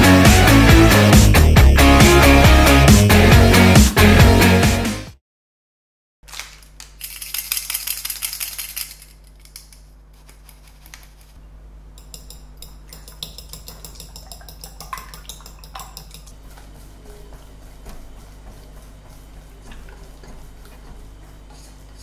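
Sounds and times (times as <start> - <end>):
fork beating eggs in glass bowl: 12.0 - 17.2.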